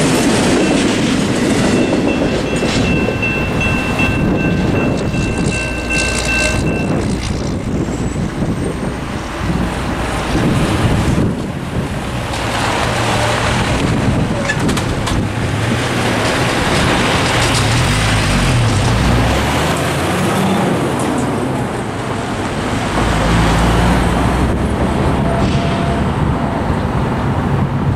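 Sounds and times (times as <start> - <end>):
cars passing: 0.0 - 27.9
heavy truck engine passing: 0.0 - 27.9.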